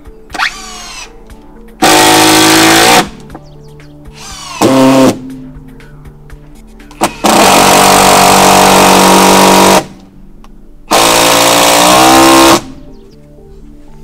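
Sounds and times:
impact driver hammering: 1.8 - 3.1, 7.0 - 9.9, 10.9 - 12.7.

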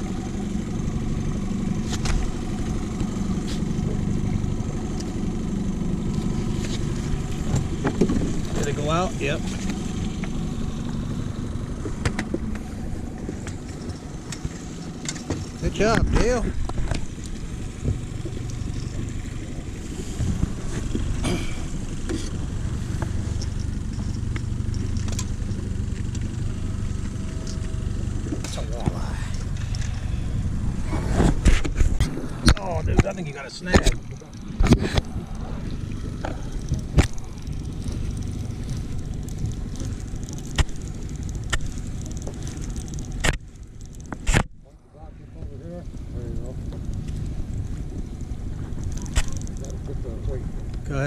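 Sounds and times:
outboard motor running: 0.0 - 51.0
light clicks of gear: 23.0 - 26.3, 31.2 - 44.5, 45.4 - 50.8.

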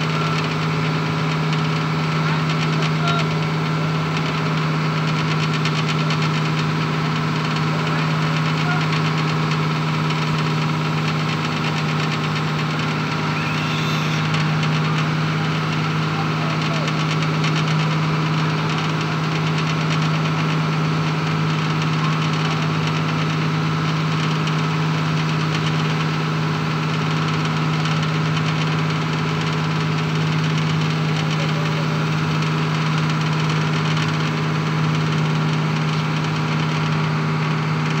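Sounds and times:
boat engine droning: 10.6 - 19.6.

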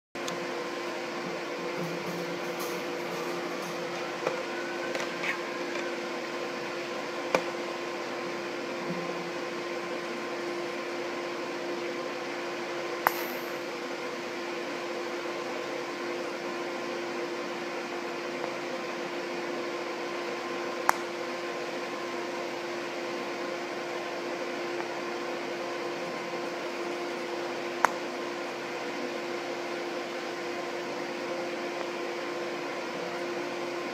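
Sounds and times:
welding machine hum and hiss: 0.2 - 33.9.

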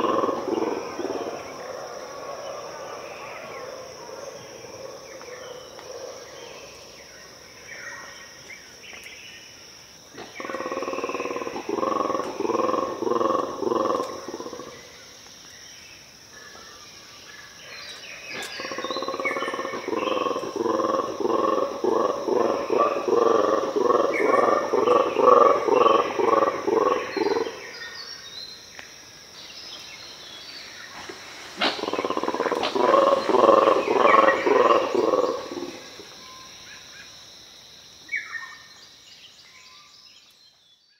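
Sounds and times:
monkeys roaring: 0.0 - 7.0, 10.2 - 14.8, 18.4 - 27.7, 31.6 - 36.2.

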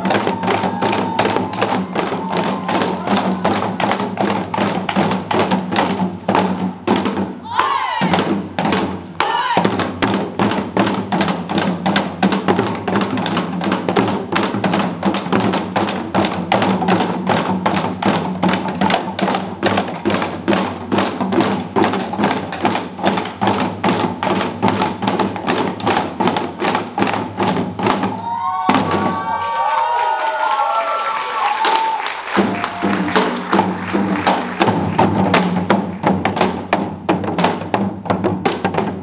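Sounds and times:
hourglass drums beating fast: 0.0 - 6.6.

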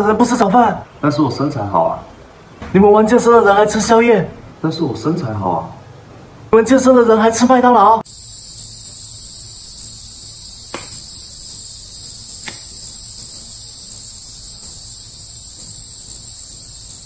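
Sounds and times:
crickets chirping: 8.0 - 17.0
faint ticks: 8.5 - 17.0.

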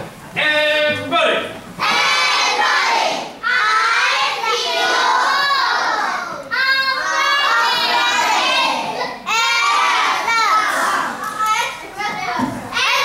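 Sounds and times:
children chanting in unison: 1.8 - 11.2.

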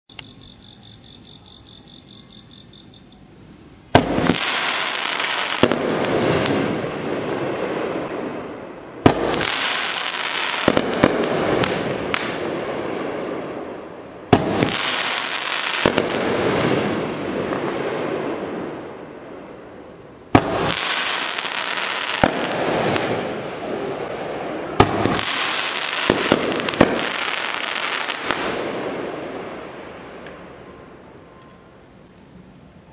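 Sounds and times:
fireworks crackling bursts: 3.9 - 30.6
fireworks reports: 20.3 - 28.8.

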